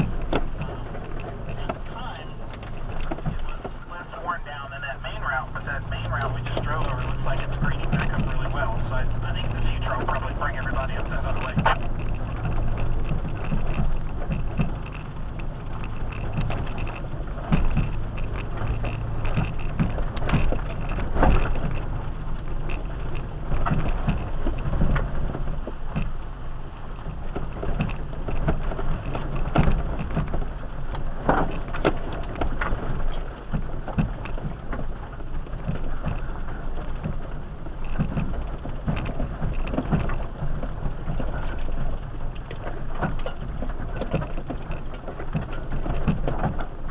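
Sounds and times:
knocks and bumps: 0.0 - 26.2
engine running low: 0.0 - 46.9
tyres crunching on gravel: 0.0 - 46.9.

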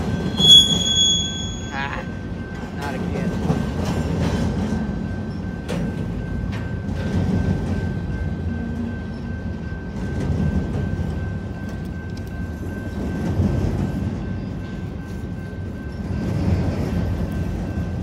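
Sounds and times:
crossing bell ringing: 0.0 - 18.0
train wheels rumbling on rails: 0.0 - 18.0.

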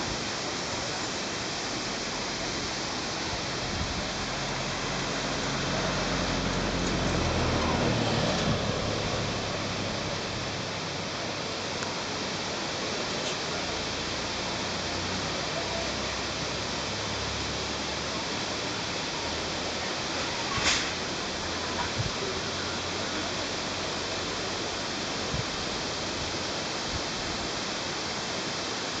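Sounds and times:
waterfall rushing: 0.0 - 29.0.

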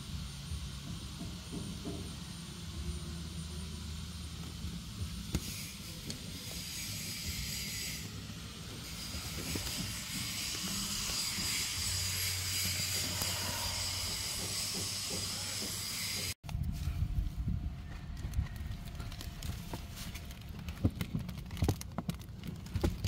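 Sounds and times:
plastic tarp rustling: 18.6 - 23.0.

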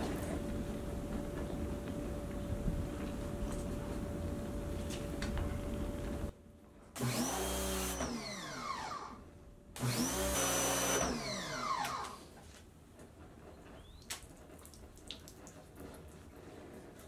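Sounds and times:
motor whine winding down: 7.0 - 12.3.

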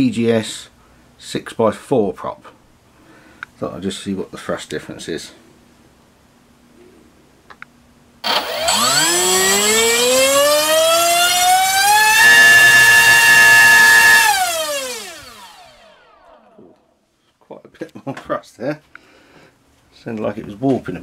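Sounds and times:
propeller motor whine: 8.2 - 16.5.

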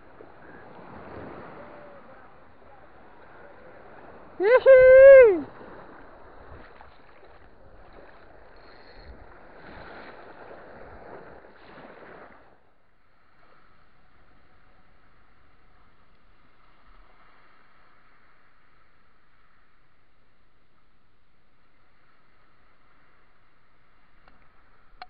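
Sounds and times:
wind on microphone: 0.0 - 12.5
small waves washing on sand: 0.0 - 25.0.

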